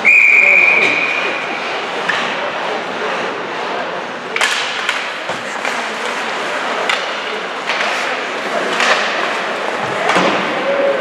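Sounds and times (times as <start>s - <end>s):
spectators chattering: 0.0s - 11.0s
hockey sticks clacking on puck: 0.8s - 3.7s, 4.3s - 11.0s
puck hitting boards: 4.3s - 6.2s, 6.8s - 10.6s.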